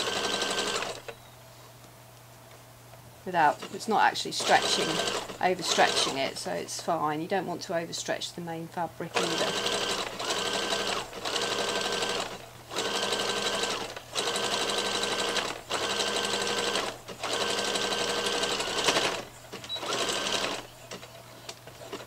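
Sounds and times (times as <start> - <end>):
electric sewing machine stitching: 0.0 - 1.1, 3.5 - 6.5, 9.1 - 20.7.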